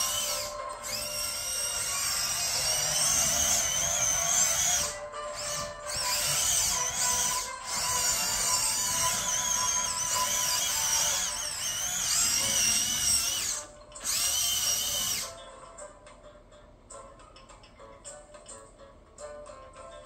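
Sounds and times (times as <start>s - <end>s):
toy robot motors whining: 0.0s - 15.4s.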